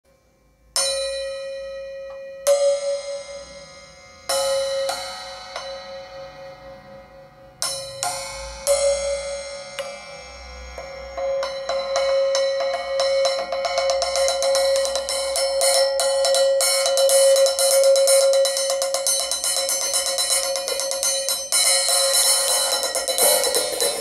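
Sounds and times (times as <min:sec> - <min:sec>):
hi-hat hits ringing: 0:00.1 - 0:24.0.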